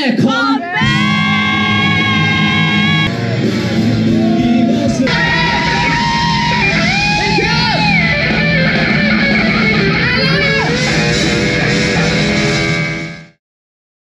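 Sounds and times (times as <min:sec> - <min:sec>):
person singing: 0:00.6 - 0:03.3
live rock band playing: 0:00.8 - 0:13.4.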